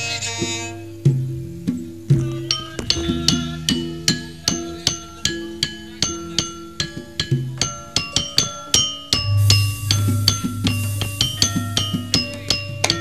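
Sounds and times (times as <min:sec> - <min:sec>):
gamelan metal keys ringing: 0:02.4 - 0:13.0
deep gong tones: 0:09.2 - 0:12.7.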